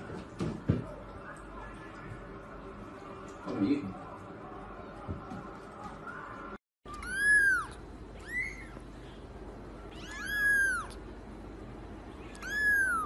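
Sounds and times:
kitten meowing: 0:06.9 - 0:08.8, 0:09.9 - 0:11.0, 0:12.2 - 0:13.0.

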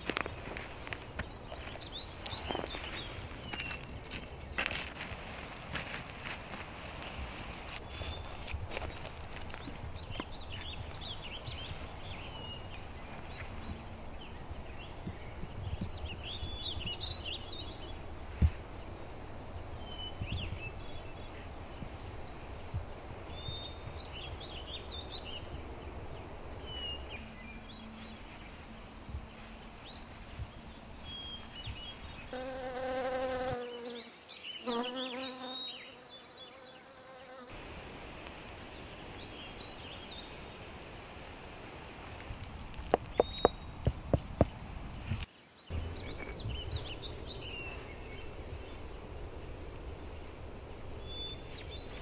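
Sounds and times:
birds chirping: 0:00.0 - 0:37.4, 0:38.5 - 0:52.0
fly buzzing: 0:32.3 - 0:37.6.

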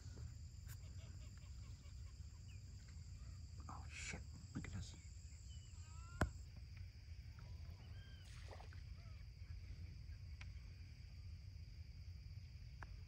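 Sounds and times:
faint bird calls: 0:00.0 - 0:06.4, 0:07.4 - 0:10.6.

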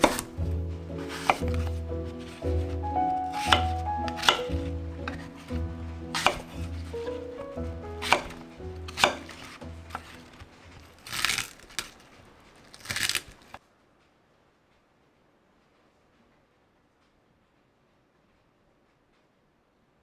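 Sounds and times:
knife cutting on wooden board: 0:00.0 - 0:00.3, 0:01.0 - 0:02.4, 0:03.2 - 0:07.3, 0:08.0 - 0:10.2
soft music with pulsing bass: 0:00.0 - 0:10.2.

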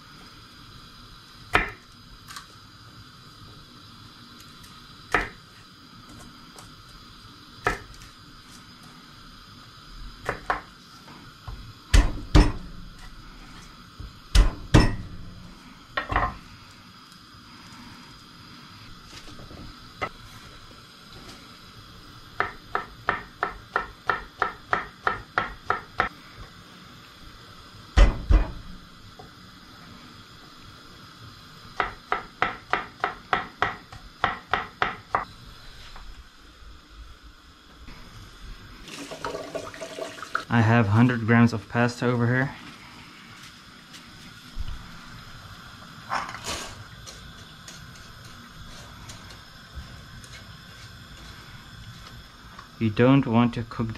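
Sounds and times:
knife chopping on wooden board: 0:22.4 - 0:26.1.

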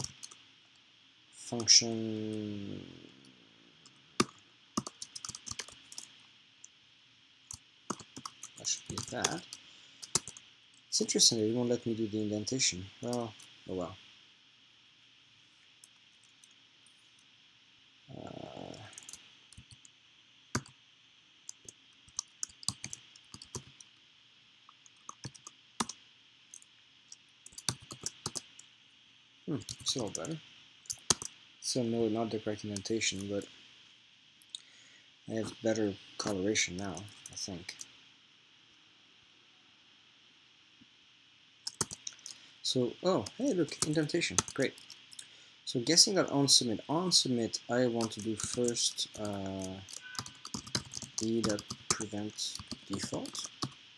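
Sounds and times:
keyboard typing clicks: 0:00.0 - 0:00.4, 0:04.2 - 0:06.1, 0:07.9 - 0:10.4, 0:21.5 - 0:23.8, 0:24.9 - 0:26.7, 0:27.5 - 0:28.4, 0:29.7 - 0:31.3, 0:41.7 - 0:42.4, 0:43.7 - 0:45.2, 0:48.0 - 0:53.8.

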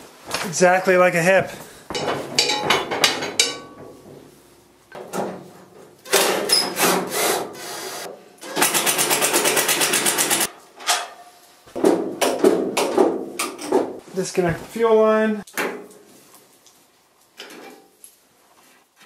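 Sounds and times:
tools knocking on metal: 0:01.9 - 0:04.3.

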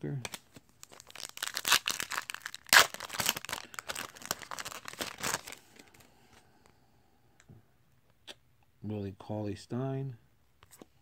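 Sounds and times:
foil wrapper tearing and crinkling: 0:00.3 - 0:05.9.

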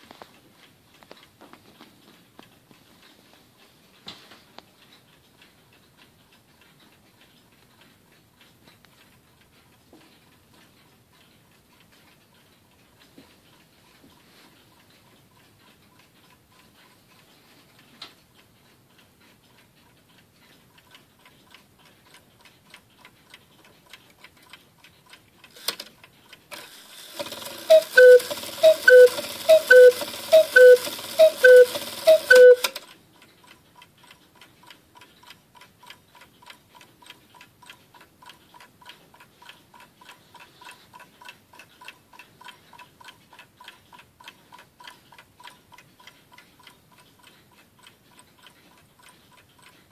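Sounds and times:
clock ticking: 0:00.0 - 0:49.9
clock click: 0:04.0 - 0:49.9
cuckoo clock calling: 0:26.5 - 0:32.9.

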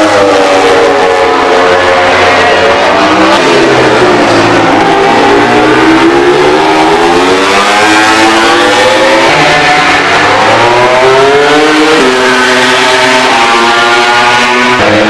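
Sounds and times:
motorcycle engine at high revs: 0:05.2 - 0:15.0.

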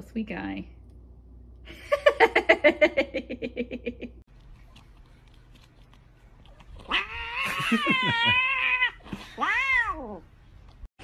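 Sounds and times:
cat meowing: 0:06.8 - 0:10.2.

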